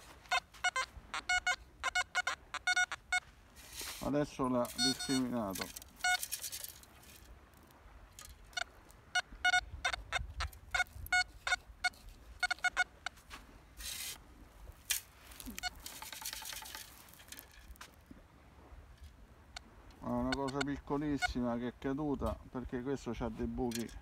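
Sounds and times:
metal detector beeps: 0:00.0 - 0:06.7, 0:08.5 - 0:13.1, 0:15.4 - 0:17.4, 0:20.1 - 0:21.4
sand sifting through metal scoop: 0:03.6 - 0:06.8.

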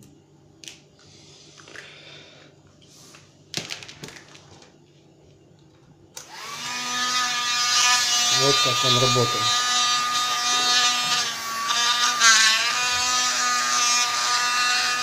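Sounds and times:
handheld vacuum cleaner whine: 0:06.2 - 0:15.0.

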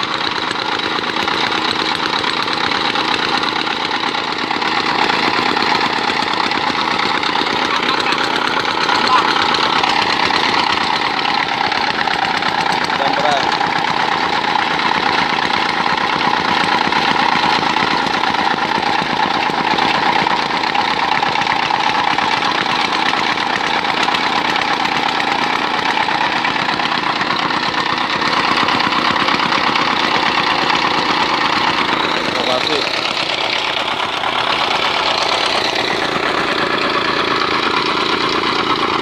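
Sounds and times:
petrol engine running steadily: 0:00.0 - 0:39.0
tamper ram pounding soil: 0:00.0 - 0:39.0.

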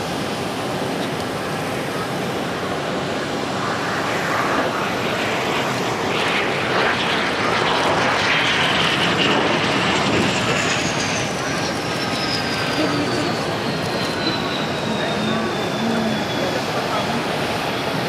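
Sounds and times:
jet engines roaring: 0:00.0 - 0:18.0
whining tone: 0:07.8 - 0:18.0.

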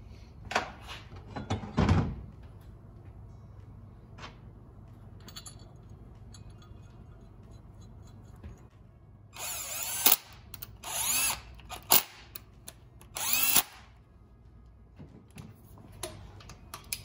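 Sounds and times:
handheld power tool motor: 0:09.4 - 0:12.2, 0:13.0 - 0:13.8.

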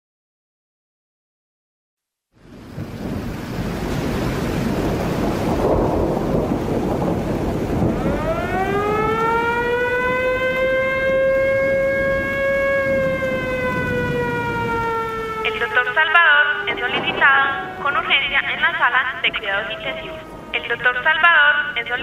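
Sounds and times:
rushing rumbling noise: 0:02.4 - 0:22.0
siren wailing: 0:07.5 - 0:22.0.

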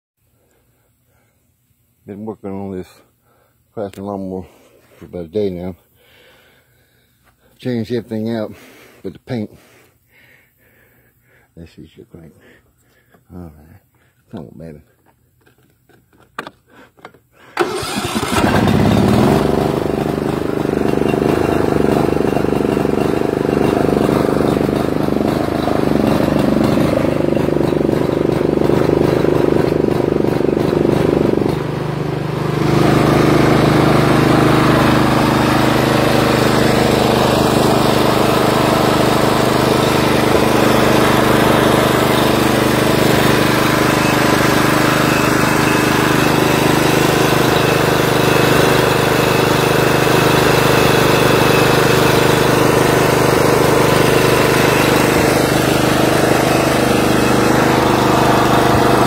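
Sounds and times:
riding lawn mower engine: 0:15.4 - 0:59.0.

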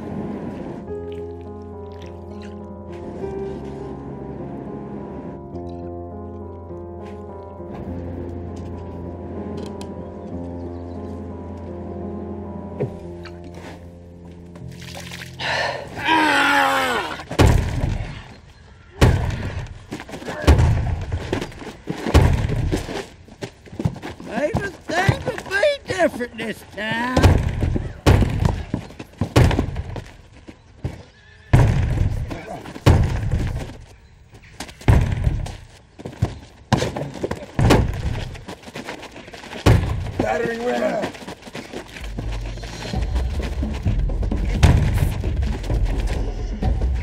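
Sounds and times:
music: 0:00.0 - 0:17.0, 0:41.9 - 0:47.0
heavy fight thumps: 0:17.3 - 0:18.2, 0:19.0 - 0:23.0, 0:27.1 - 0:30.2, 0:30.8 - 0:33.8, 0:34.8 - 0:38.5, 0:39.5 - 0:40.6, 0:43.6 - 0:47.0.

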